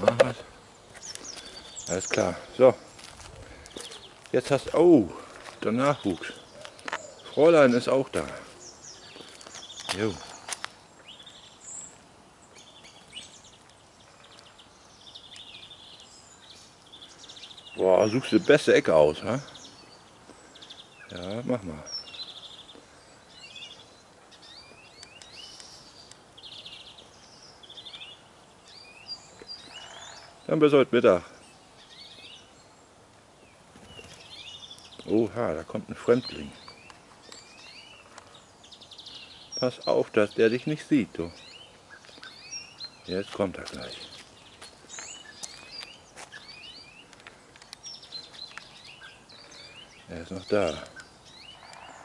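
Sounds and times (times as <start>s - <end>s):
outdoor background noise: 0.0s - 52.0s
songbirds chirping and whistling: 0.0s - 52.0s.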